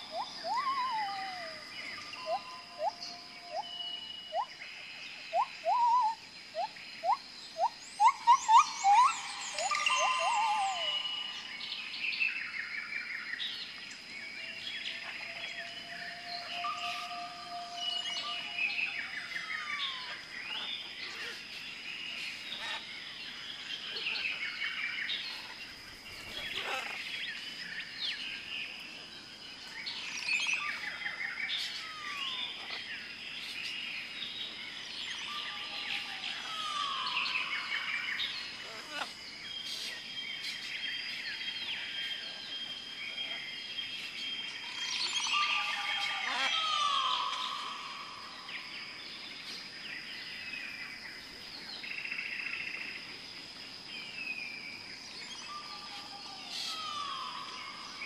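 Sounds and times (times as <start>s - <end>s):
birds calling: 0.0s - 12.6s, 22.2s - 28.4s, 43.2s - 48.7s.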